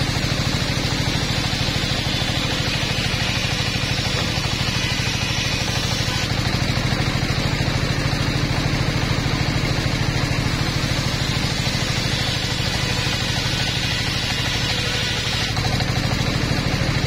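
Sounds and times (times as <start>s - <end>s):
sawmill engine throbbing: 0.0s - 17.0s
spinning saw blade hiss: 0.6s - 6.5s, 11.0s - 15.6s.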